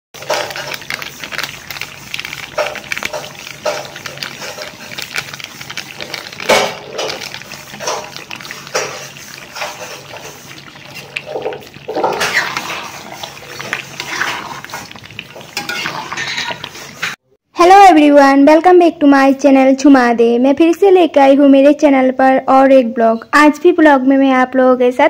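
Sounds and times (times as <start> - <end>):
curry bubbling with pops: 0.2 - 17.2
spoon stirring a pot: 0.2 - 17.2.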